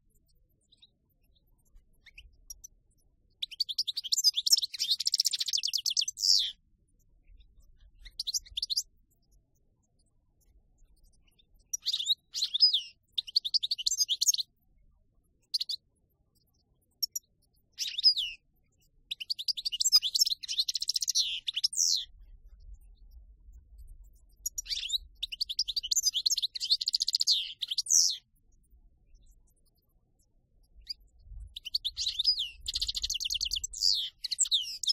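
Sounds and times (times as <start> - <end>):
songbird twittering: 3.4 - 6.6, 7.4 - 8.9, 11.3 - 14.5, 15.5 - 15.8, 17.0 - 18.4, 19.1 - 22.2, 24.3 - 28.3, 30.7 - 34.9.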